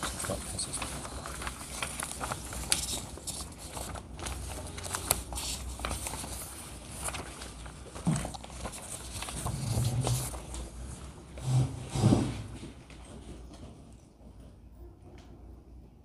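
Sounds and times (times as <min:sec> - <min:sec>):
paper rustling and crackling: 0:00.0 - 0:11.3.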